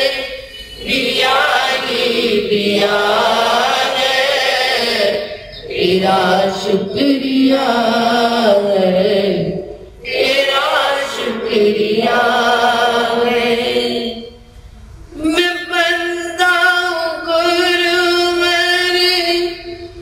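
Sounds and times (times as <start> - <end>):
person chanting a prayer: 0.0 - 14.4, 15.1 - 20.0.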